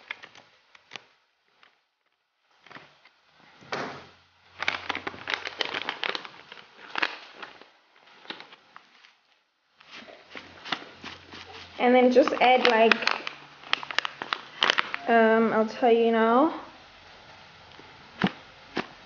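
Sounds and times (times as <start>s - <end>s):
foil sachet crinkling: 4.5s - 9.2s, 9.8s - 15.3s.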